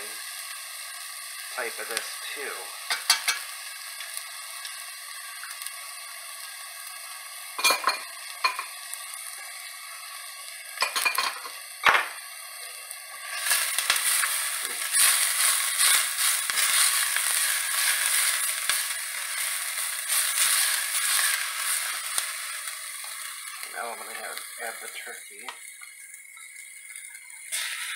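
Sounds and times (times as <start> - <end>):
onion sizzling in hot oil: 0.0 - 27.9
spatula stirring in pan: 13.2 - 22.4.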